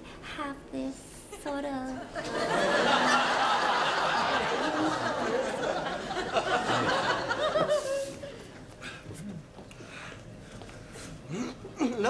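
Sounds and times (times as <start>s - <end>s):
studio audience laughing: 2.0s - 8.4s.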